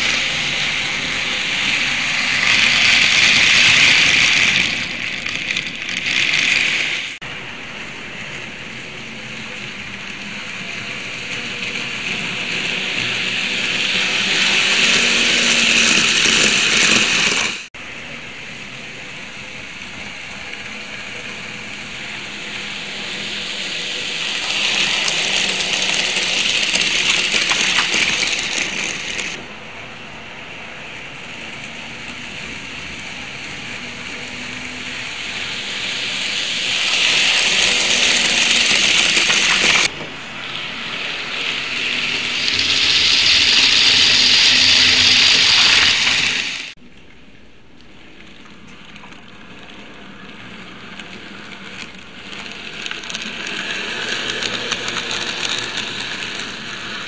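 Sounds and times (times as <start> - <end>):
model trains running on track: 0.0 - 57.0.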